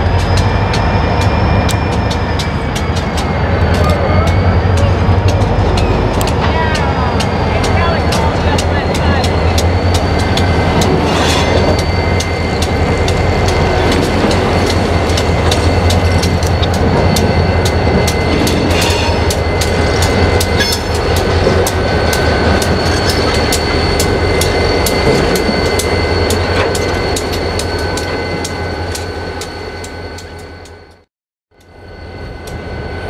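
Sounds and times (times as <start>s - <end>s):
wheels clicking over rail joints: 0.0s - 30.8s
locomotive engines droning: 0.0s - 33.0s.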